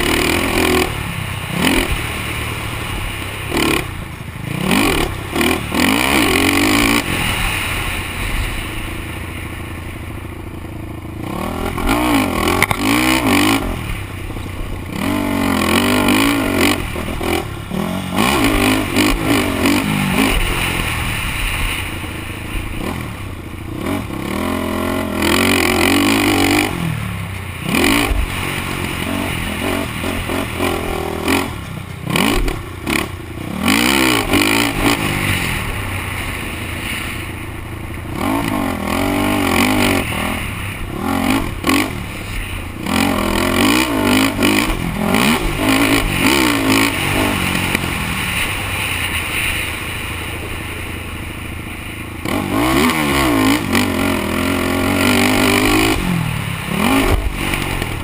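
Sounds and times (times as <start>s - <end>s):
quad engine revving: 0.0s - 58.0s
rushing noise: 0.0s - 58.0s.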